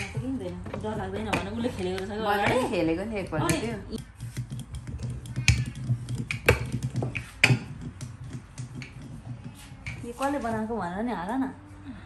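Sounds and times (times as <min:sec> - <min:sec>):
rolling pin clicking on wooden board: 0:03.3 - 0:10.0.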